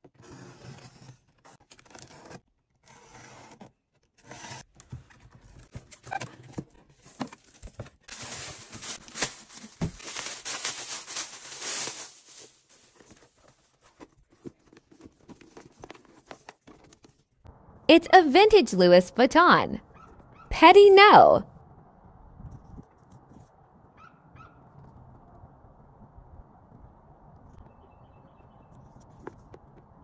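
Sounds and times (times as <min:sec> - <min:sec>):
cardboard box opening: 0:00.2 - 0:10.8, 0:11.4 - 0:17.2
plastic rustling: 0:05.4 - 0:17.3.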